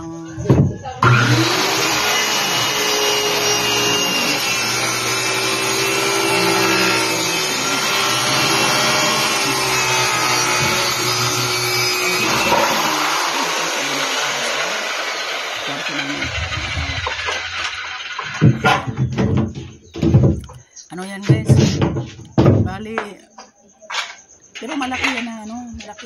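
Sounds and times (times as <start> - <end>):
circular saw cutting plywood: 0.4 - 20.4.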